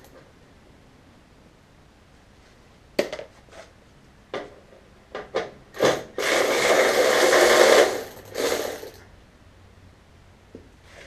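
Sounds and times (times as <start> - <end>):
hand ratchet clicking: 5.8 - 9.0.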